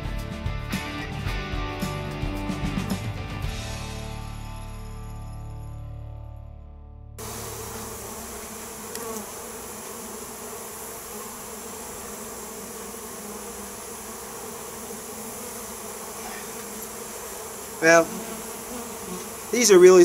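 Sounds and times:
honey bees buzzing: 7.2s - 20.0s.

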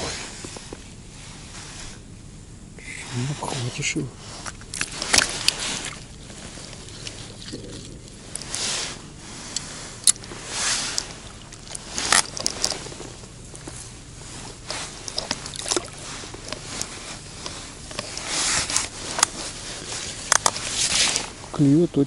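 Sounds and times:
landing net rustling: 4.4s - 21.5s.

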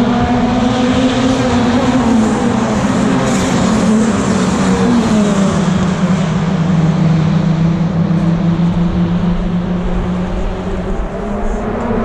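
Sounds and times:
racing car engines droning: 0.0s - 12.0s.

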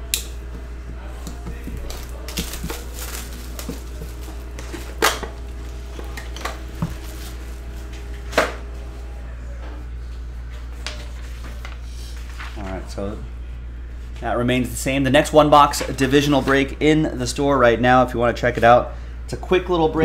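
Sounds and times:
steady low hum: 0.0s - 20.0s
shrink wrap crinkling: 1.1s - 8.3s.

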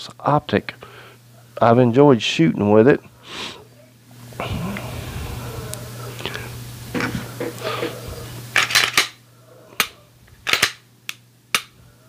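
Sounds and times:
pistol slide and trigger clicks: 10.5s - 11.7s.

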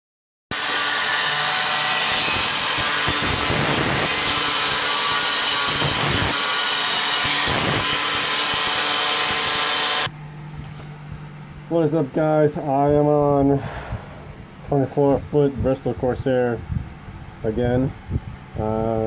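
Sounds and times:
angle grinder motor whine: 0.5s - 10.1s.

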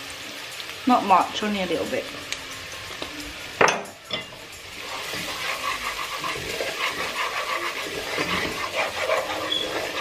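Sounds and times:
paste sizzling in a pot: 0.0s - 10.0s
wooden spoon scraping a pot: 4.3s - 10.0s.

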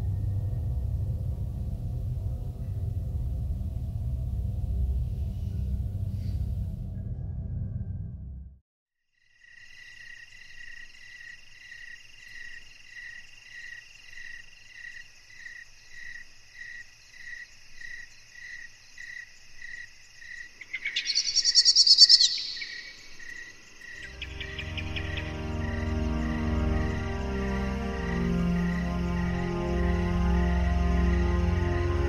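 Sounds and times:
cricket chirping: 9.1s - 32.0s
crickets trilling: 9.2s - 32.0s.

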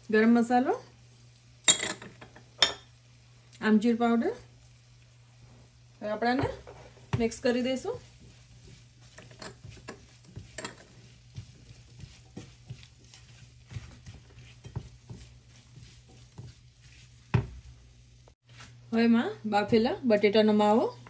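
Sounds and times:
spatula scraping frying pan: 6.5s - 18.0s.

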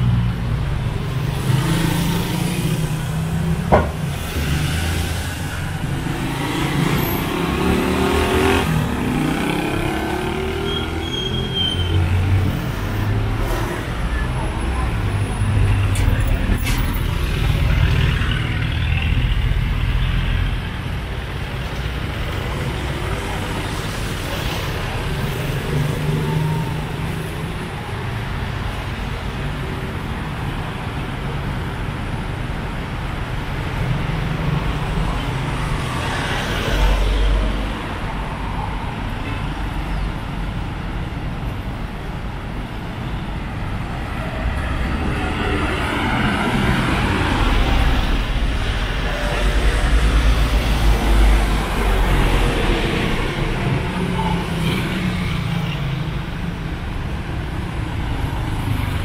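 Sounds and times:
passing cars: 0.0s - 59.0s
vehicle passing loudly: 1.2s - 11.0s.

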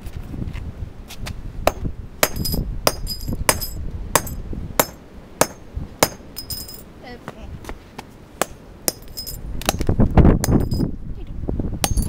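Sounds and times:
hammer striking asphalt: 1.7s - 6.8s, 8.4s - 10.9s.

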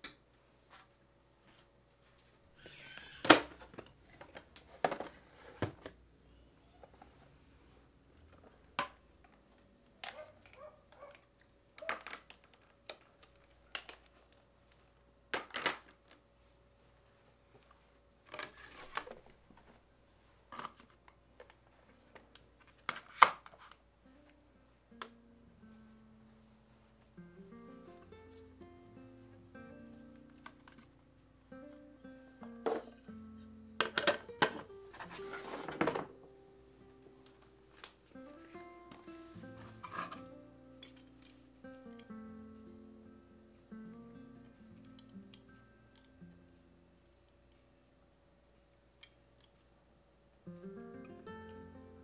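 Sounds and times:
rustling: 16.0s - 23.8s, 34.3s - 36.2s
soft acoustic guitar music: 24.0s - 47.2s, 50.4s - 52.0s
household items knocking and clicking: 33.8s - 34.6s.

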